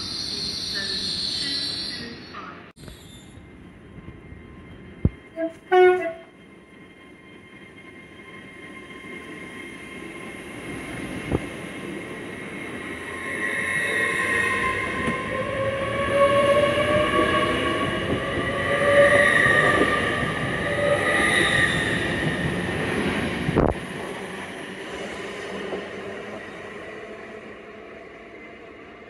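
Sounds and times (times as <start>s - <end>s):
train passing with whining wheels: 2.8s - 29.0s.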